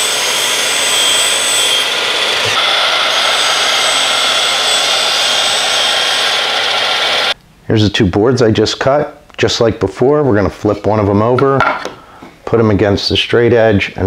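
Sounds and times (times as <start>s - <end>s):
miter saw whining: 0.0s - 7.4s.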